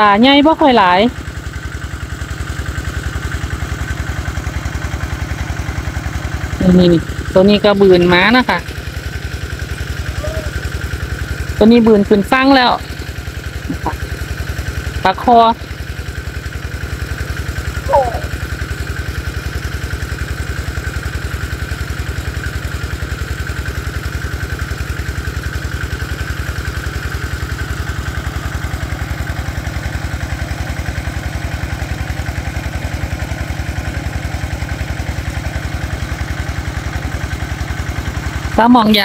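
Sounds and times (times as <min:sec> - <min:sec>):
small engine chugging: 0:00.0 - 0:39.0.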